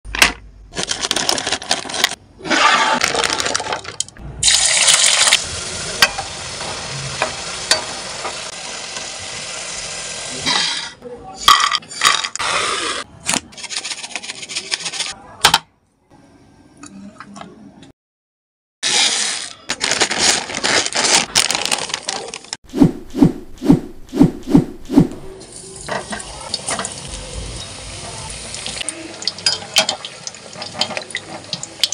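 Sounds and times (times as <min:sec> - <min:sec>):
plastic bag crinkling: 0:00.7 - 0:02.2, 0:03.0 - 0:04.0, 0:18.9 - 0:22.6
scissors cutting plastic packet: 0:00.8 - 0:02.2, 0:18.9 - 0:22.5.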